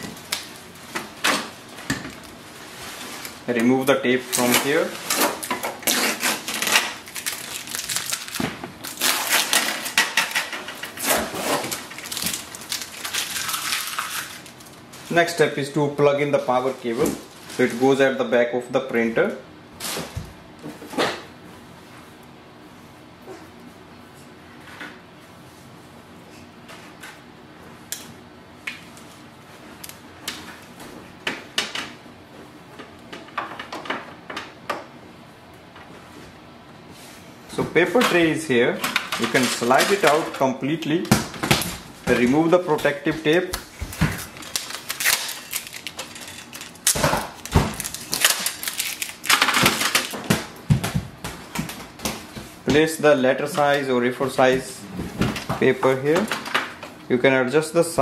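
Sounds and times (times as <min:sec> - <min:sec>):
packing tape peeled and crumpled: 0:04.3 - 0:14.8, 0:43.9 - 0:50.2.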